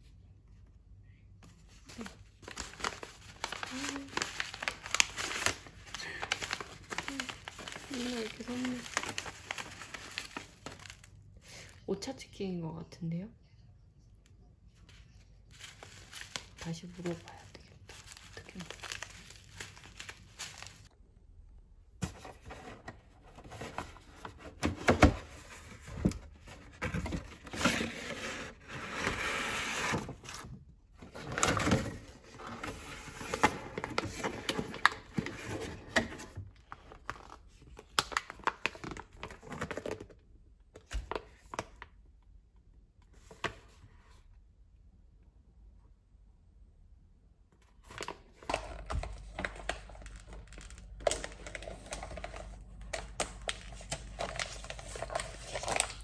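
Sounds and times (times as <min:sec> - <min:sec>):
paper and plastic crinkling: 0:01.5 - 0:11.8, 0:14.8 - 0:20.9, 0:22.0 - 0:40.2, 0:47.8 - 0:56.0.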